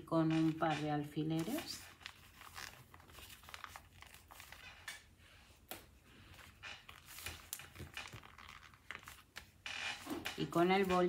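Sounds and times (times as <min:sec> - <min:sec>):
paper rustling and crinkling: 0:01.4 - 0:05.1, 0:06.1 - 0:11.0.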